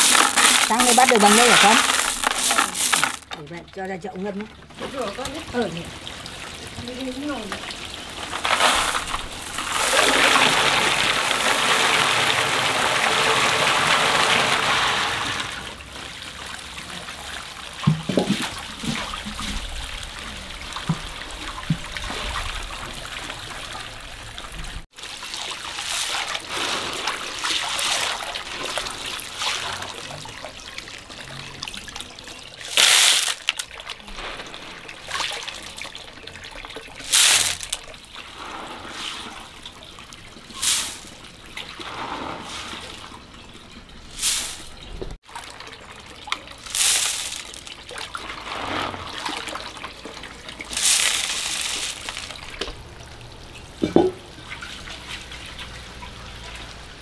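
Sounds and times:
loud water splashes: 0:00.0 - 0:03.3, 0:04.8 - 0:36.0, 0:36.9 - 0:57.0
water pouring into a basin: 0:00.0 - 0:03.4, 0:05.0 - 0:56.9
water trickling and sloshing: 0:00.0 - 0:57.0.

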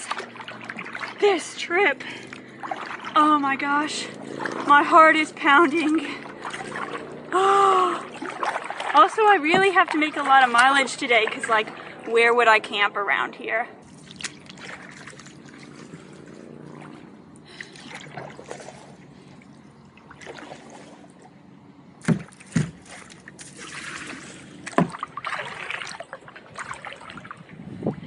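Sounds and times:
paddle splashing water: 0:00.0 - 0:13.2, 0:13.8 - 0:28.0
sharp knocks: 0:22.0 - 0:22.8.

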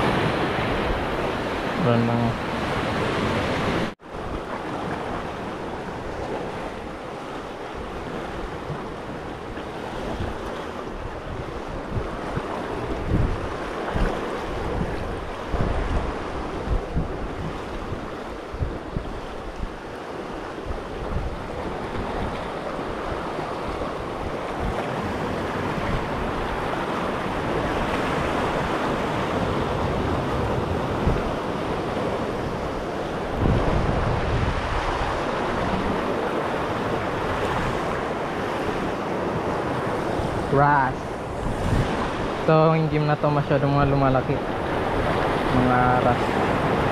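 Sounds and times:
wind rumbling on microphone: 0:00.0 - 0:43.0
sea surf washing over rocks: 0:00.0 - 0:46.9.

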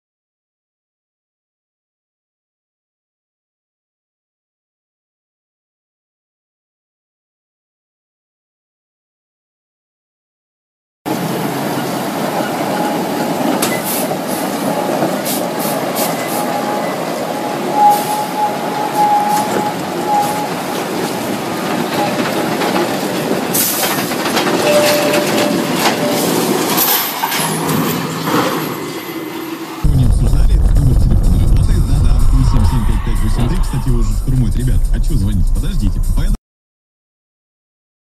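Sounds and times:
metallic squeals: 0:12.5 - 0:22.4, 0:24.5 - 0:29.9, 0:31.0 - 0:36.1
truck running and rattling: 0:17.9 - 0:36.4.

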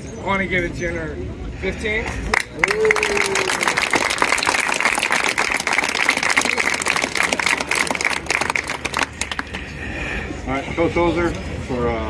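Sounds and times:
people clapping: 0:02.3 - 0:09.8.

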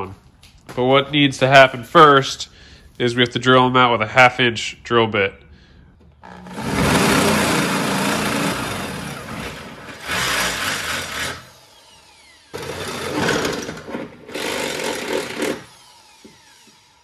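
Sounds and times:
electric drill drilling steel: 0:06.2 - 0:17.0.

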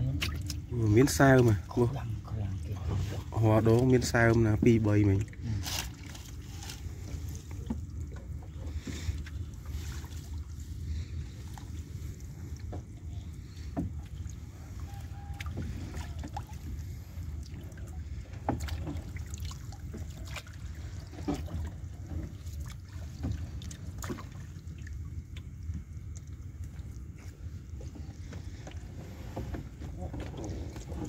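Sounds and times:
water splashing and dripping: 0:00.0 - 0:01.8, 0:02.5 - 0:29.3
low steady rumble: 0:00.0 - 0:31.0.

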